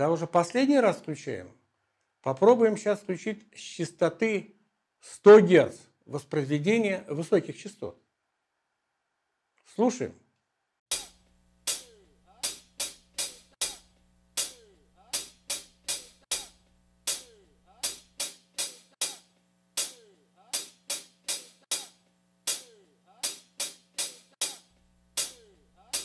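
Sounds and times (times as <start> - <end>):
cymbal hits: 10.9 - 26.0
drum kit hits: 10.9 - 26.0.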